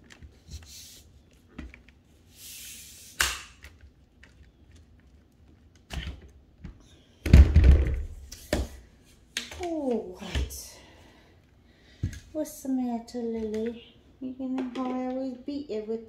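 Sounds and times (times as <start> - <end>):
knocks and thumps: 6.6 - 8.8.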